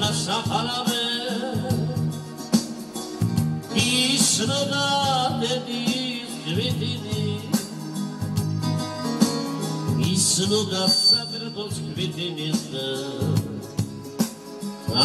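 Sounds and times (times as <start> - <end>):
man singing into microphone: 0.0 - 2.4, 3.6 - 8.0, 9.9 - 14.0
electronic keyboard chords: 0.0 - 15.0
steady beat: 0.0 - 15.0.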